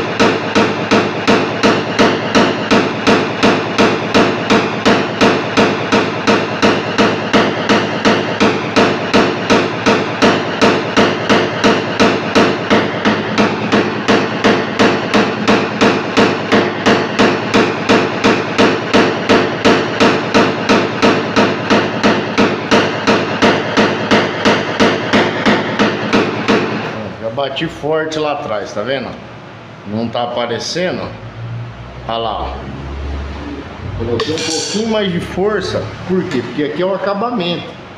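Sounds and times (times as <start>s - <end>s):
hammer tapping on sheet metal: 0.0s - 26.8s, 34.2s - 35.4s.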